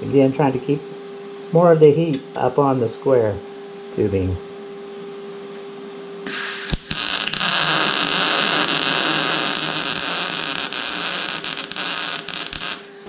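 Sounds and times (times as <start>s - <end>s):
welding arc crackling and hissing: 6.2s - 13.0s.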